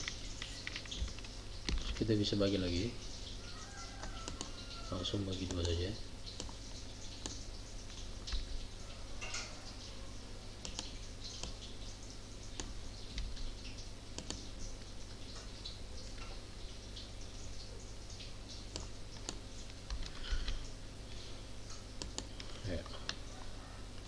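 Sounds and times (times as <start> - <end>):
keyboard and mouse clicking: 0.0 - 2.1, 4.0 - 4.6, 5.4 - 6.6, 7.2 - 7.4, 10.6 - 11.6, 12.6 - 13.4, 14.2 - 14.5, 18.7 - 20.6, 22.0 - 23.2.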